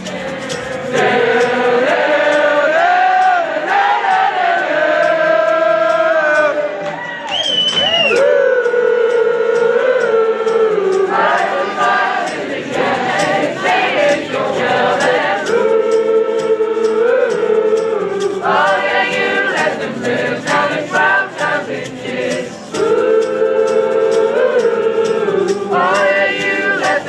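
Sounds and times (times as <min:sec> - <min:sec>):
group singing in close harmony: 0:00.0 - 0:07.2, 0:08.0 - 0:27.0.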